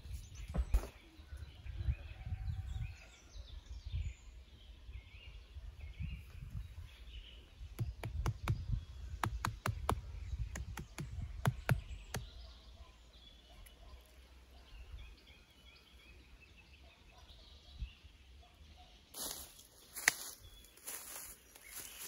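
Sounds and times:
birds chirping: 0:00.0 - 0:22.0
scuffing in dirt: 0:19.2 - 0:22.0.

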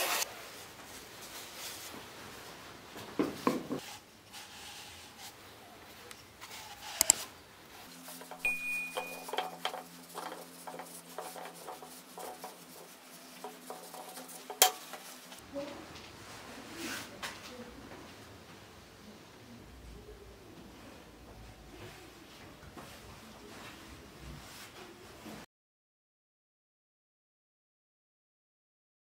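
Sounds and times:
cloth rubbing wood: 0:07.7 - 0:15.4.

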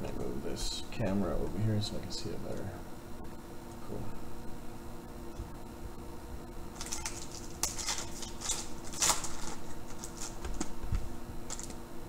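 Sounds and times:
foil wrapper crinkling and tearing: 0:06.8 - 0:10.8, 0:11.4 - 0:11.8.

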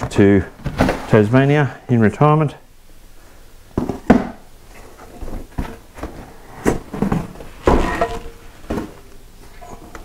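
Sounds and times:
cardboard scraping and rustling: 0:00.6 - 0:01.2, 0:04.8 - 0:09.1.

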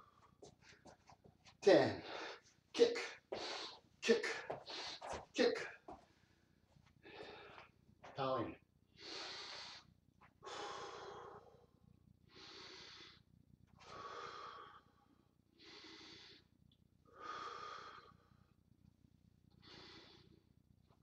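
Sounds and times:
man breathing deeply: 0:02.0 - 0:05.2, 0:07.0 - 0:07.7, 0:09.0 - 0:11.7, 0:12.3 - 0:13.2, 0:13.8 - 0:16.5, 0:17.1 - 0:18.5, 0:19.6 - 0:20.4.

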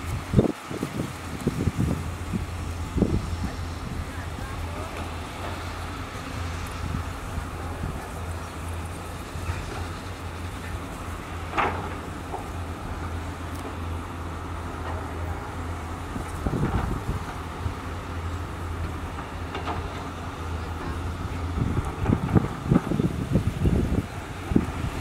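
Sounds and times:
excavator diesel engines droning: 0:00.0 - 0:25.0
excavator knock: 0:09.4 - 0:13.9.

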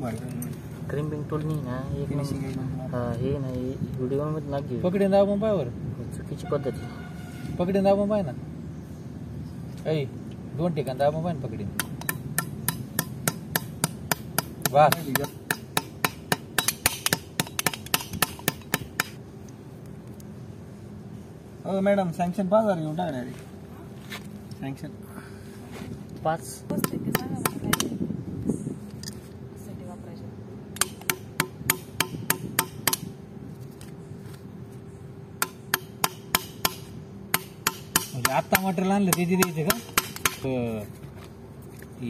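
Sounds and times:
small hammer tapping metal: 0:11.8 - 0:19.2, 0:35.4 - 0:40.5.

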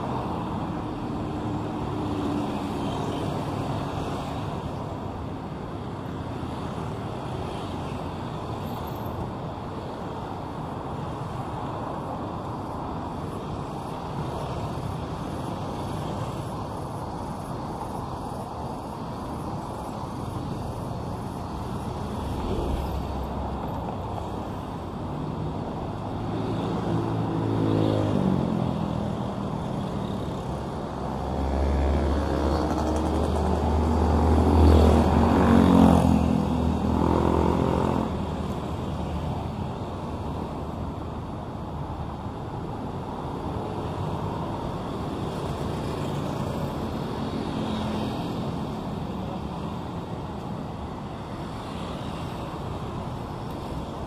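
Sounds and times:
steady road hum: 0:00.0 - 0:54.0
motor vehicles passing: 0:21.8 - 0:24.4, 0:31.2 - 0:38.2.

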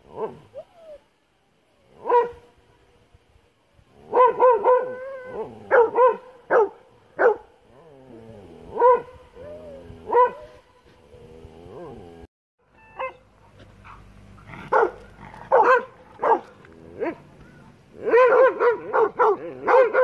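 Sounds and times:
dog barking high-pitched: 0:04.2 - 0:05.0, 0:05.7 - 0:07.4, 0:10.1 - 0:10.6, 0:13.0 - 0:13.3, 0:14.7 - 0:16.5, 0:18.0 - 0:20.0.

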